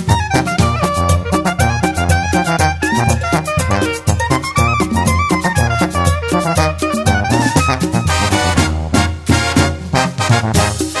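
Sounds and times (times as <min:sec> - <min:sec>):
brass band music: 0:00.0 - 0:11.0
drum and cymbal beat: 0:00.0 - 0:11.0.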